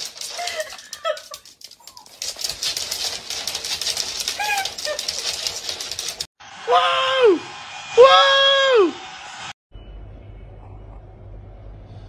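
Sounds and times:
dog claws scrabbling on hardwood: 0:00.0 - 0:06.3.

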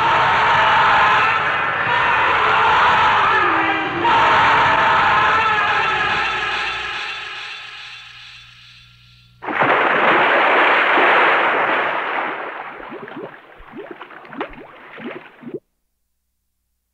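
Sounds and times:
splash into pool: 0:09.4 - 0:15.6
water rushing and bubbling: 0:09.4 - 0:15.6.

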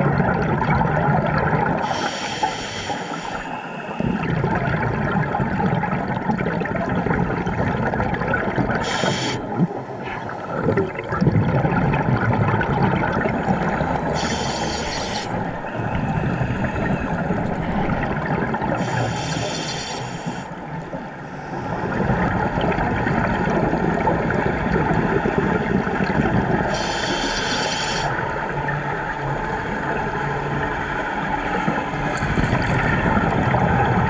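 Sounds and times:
bubbling exhaled air: 0:00.0 - 0:28.2, 0:32.1 - 0:34.0
hissing regulator inhales: 0:01.8 - 0:04.0, 0:08.8 - 0:09.4, 0:14.2 - 0:16.8, 0:18.8 - 0:20.5, 0:26.7 - 0:28.1.

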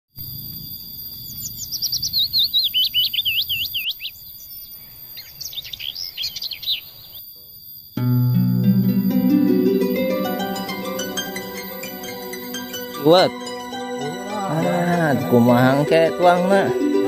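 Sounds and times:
songbird singing: 0:00.6 - 0:17.0
plucked-string music: 0:08.0 - 0:17.0
steady high-pitched tone: 0:08.0 - 0:17.0.

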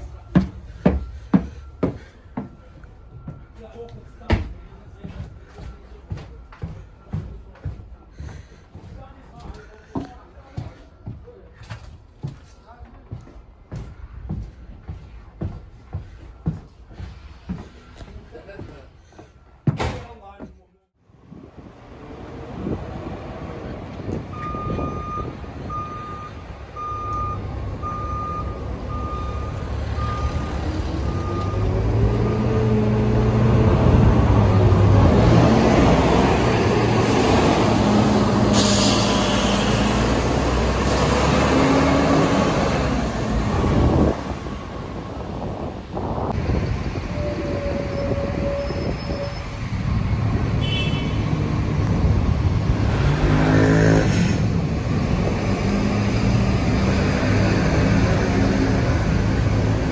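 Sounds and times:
bus diesel engine accelerating: 0:21.4 - 0:50.6, 0:51.2 - 0:59.9
loud engine whine: 0:21.8 - 0:50.6.

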